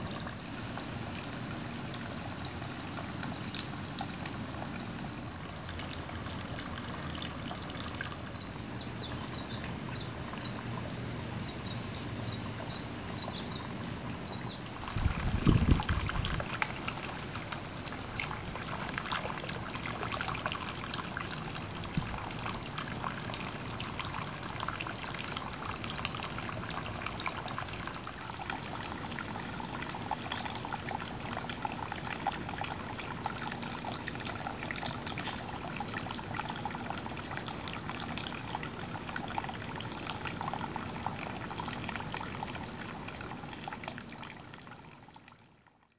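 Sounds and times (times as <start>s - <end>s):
water trickling and splashing: 0.0s - 45.9s.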